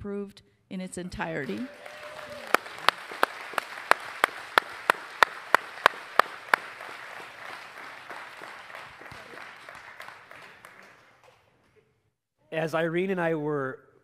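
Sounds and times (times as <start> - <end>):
congregation applauding: 1.4 - 11.6
loud close hand claps: 1.4 - 11.6.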